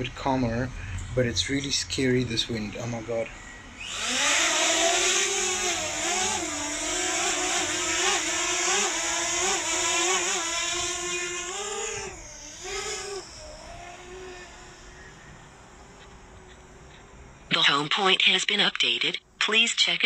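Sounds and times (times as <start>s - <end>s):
drone propellers whining: 0.0s - 17.6s.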